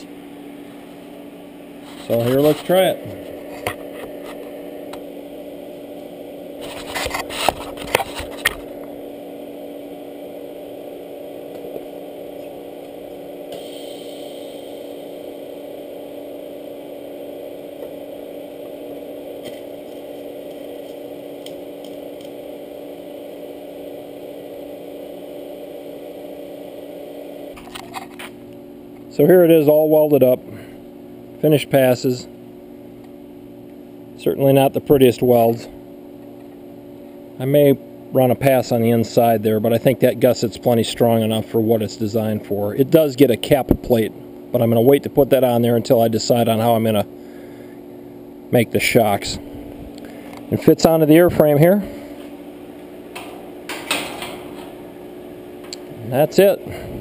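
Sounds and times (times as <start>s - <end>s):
welder humming: 0.0s - 57.0s
welding crackling: 1.8s - 28.6s, 52.1s - 56.6s.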